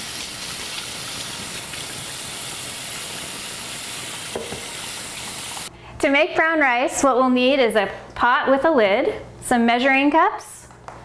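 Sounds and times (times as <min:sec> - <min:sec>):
faucet running into steel sink: 0:00.0 - 0:05.7
hands being washed: 0:00.0 - 0:05.7.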